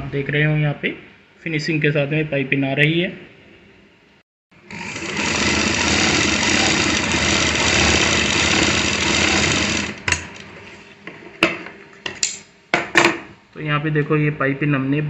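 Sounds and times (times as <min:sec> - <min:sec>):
sewing machine running: 0:04.6 - 0:10.4.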